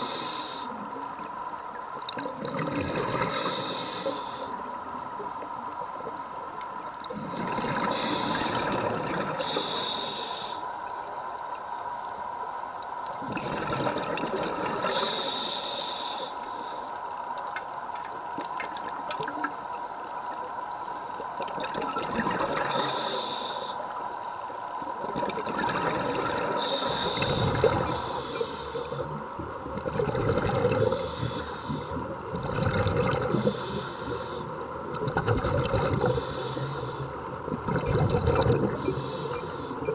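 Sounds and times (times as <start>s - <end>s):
faint steady tone: 0.0s - 39.9s
hissing regulator inhalation: 3.3s - 4.6s, 7.9s - 8.8s, 9.4s - 10.6s, 22.7s - 23.8s, 26.6s - 29.1s, 30.6s - 32.0s, 33.3s - 34.6s, 35.9s - 37.2s, 38.7s - 39.9s
bubbling exhalation: 29.7s - 31.1s, 32.4s - 33.5s, 34.9s - 36.2s, 37.6s - 38.8s.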